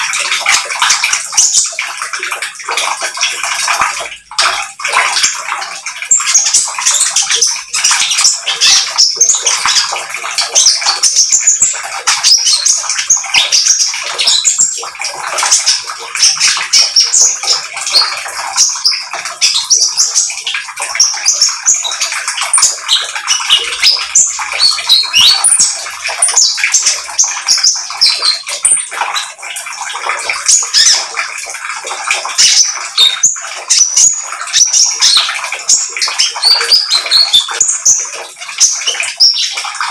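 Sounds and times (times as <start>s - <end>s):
bird chirping rapidly: 6.1s - 29.3s.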